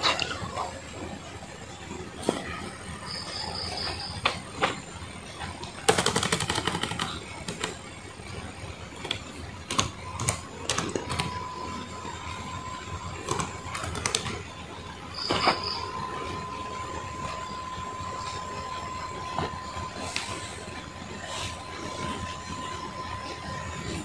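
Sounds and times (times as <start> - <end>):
laptop keyboard clicks: 5.9 - 7.8.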